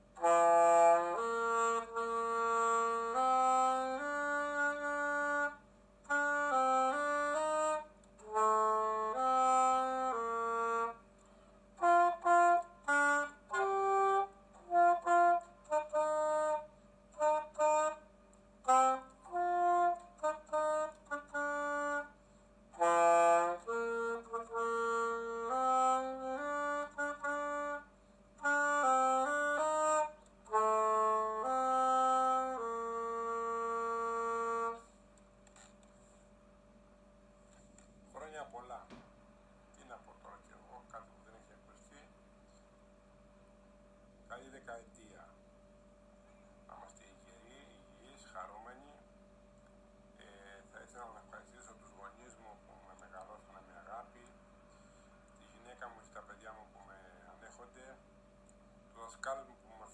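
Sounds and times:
alto saxophone melody: 0.0s - 35.8s.

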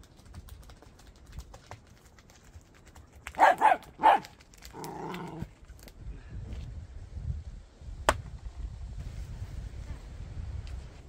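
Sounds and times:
small dog barking: 3.4s - 4.3s.

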